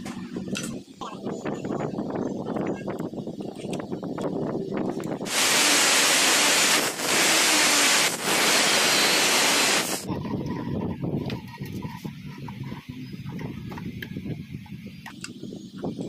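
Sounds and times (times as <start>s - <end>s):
angle grinder cutting steel: 5.3s - 10.1s.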